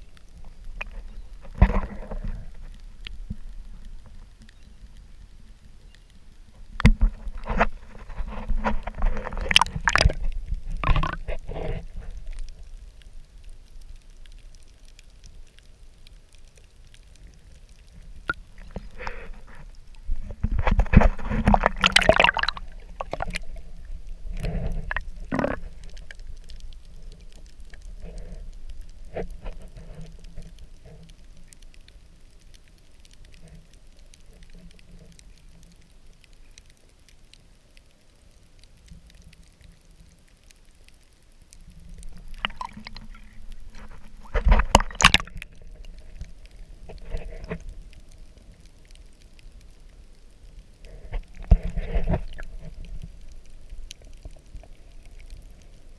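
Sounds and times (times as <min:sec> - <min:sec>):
underwater water sloshing: 0:00.1 - 0:05.8, 0:06.4 - 0:36.3, 0:41.6 - 0:55.9
bursts of rushing water: 0:18.0 - 0:26.0, 0:42.1 - 0:47.5.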